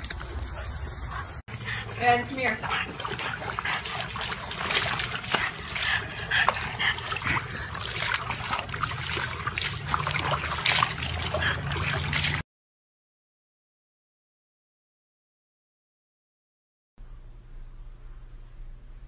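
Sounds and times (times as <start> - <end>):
water splashing in plastic tub: 2.0 - 12.4
water spilling onto pavement: 3.7 - 12.4.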